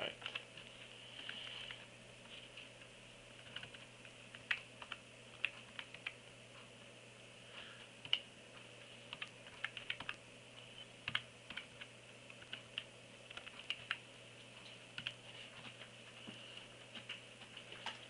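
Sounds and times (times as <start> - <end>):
typing on small keyboard: 9.1 - 10.2.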